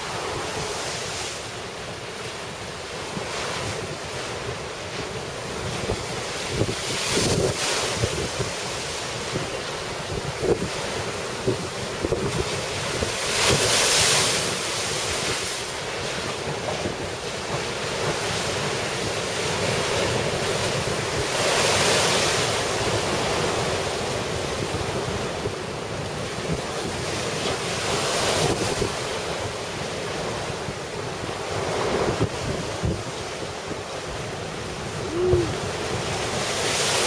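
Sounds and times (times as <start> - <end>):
surf pounding against a seawall: 0.0 - 37.0
wind buffeting microphone: 16.5 - 37.0.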